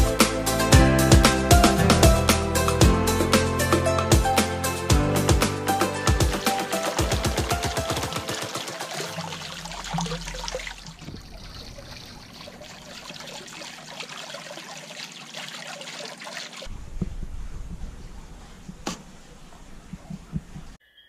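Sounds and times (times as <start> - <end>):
background music: 0.0 - 10.2
fountain water splashing: 6.6 - 16.7.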